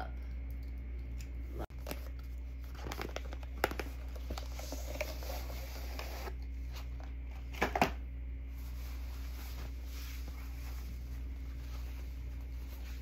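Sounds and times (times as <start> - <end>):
packaging rustling and crinkling: 1.8 - 6.9.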